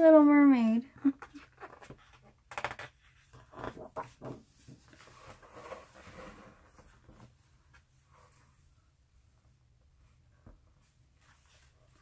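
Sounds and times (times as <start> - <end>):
book pages turning: 1.4 - 7.3.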